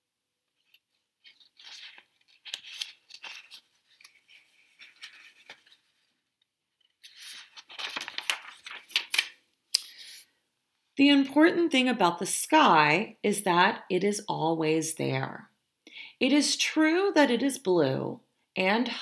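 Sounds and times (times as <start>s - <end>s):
paper pages rustling: 0.5s - 10.3s.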